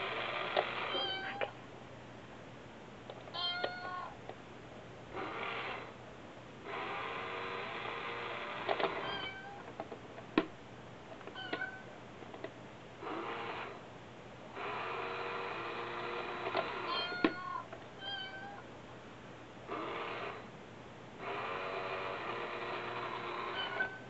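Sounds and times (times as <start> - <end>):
toy coin bank mechanism running: 0.0 - 1.1, 5.2 - 5.9, 6.7 - 9.4, 13.0 - 13.8, 14.6 - 17.2, 19.7 - 20.4, 21.2 - 24.0
short meow-like tones: 0.9 - 1.6, 16.8 - 18.6.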